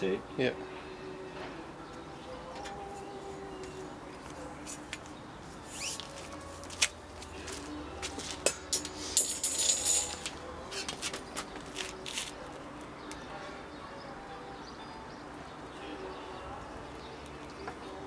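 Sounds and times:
light metallic clinks: 8.5s - 10.4s.

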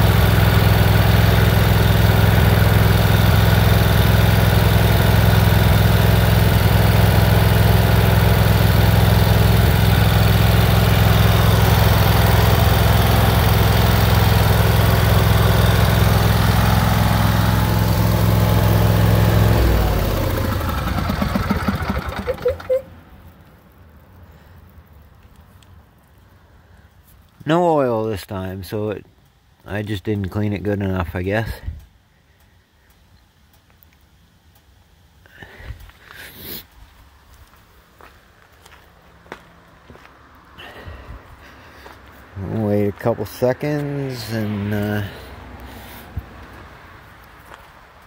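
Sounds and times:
engine running down thumps: 0.0s - 23.4s, 36.8s - 48.0s
tractor engine running: 0.0s - 23.4s, 36.7s - 48.0s.

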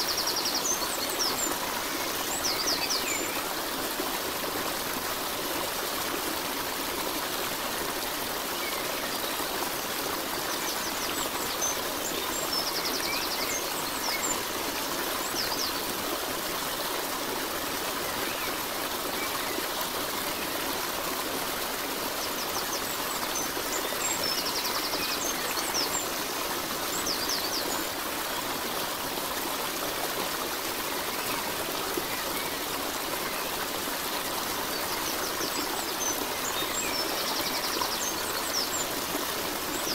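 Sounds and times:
flowing water: 0.0s - 39.9s.

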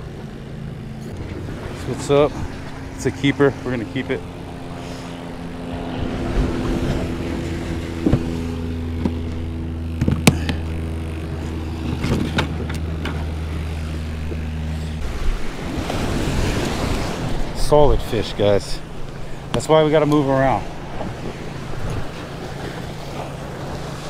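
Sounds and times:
motor engine idling: 6.5s - 15.0s.

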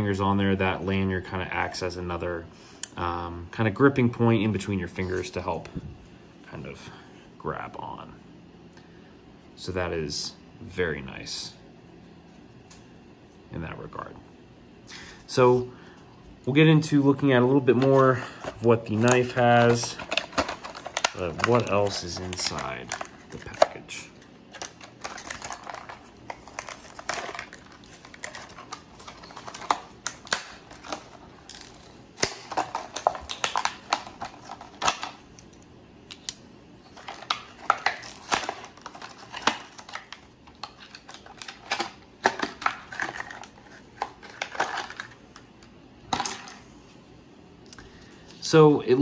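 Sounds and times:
plastic items clicking and tapping: 17.7s - 23.9s, 32.2s - 35.5s, 37.0s - 45.2s.

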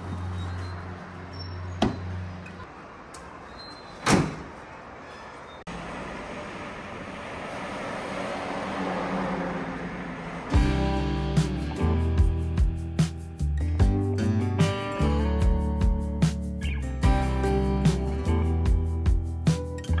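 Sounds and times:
road and wind rush: 0.0s - 13.4s
tailgate slamming shut: 1.8s - 2.1s, 4.0s - 4.5s.

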